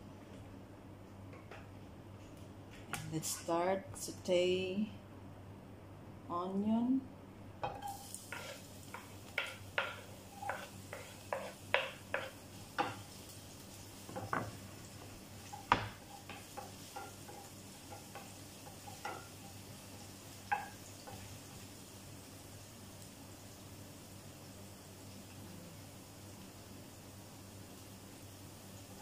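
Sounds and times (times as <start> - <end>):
wooden spoon knocking on pan: 7.6 - 13.1, 14.1 - 14.6, 15.4 - 19.4, 20.4 - 21.3
onion sizzling in oil: 7.6 - 29.0.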